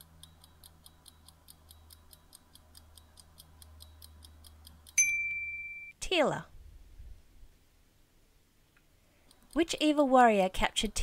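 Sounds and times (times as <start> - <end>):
clock ticks: 0.0 - 5.0, 9.2 - 11.0
low steady hum: 0.0 - 11.0.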